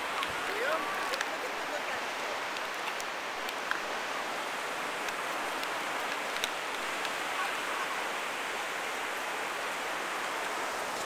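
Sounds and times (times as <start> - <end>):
ocean surf washing onto beach: 0.0 - 11.0
faint clicks: 5.0 - 7.2.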